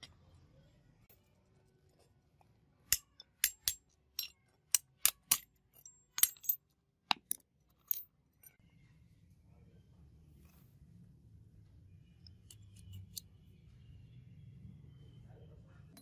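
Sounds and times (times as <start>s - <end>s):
small metal parts clinking: 2.9s - 8.6s, 12.4s - 13.3s.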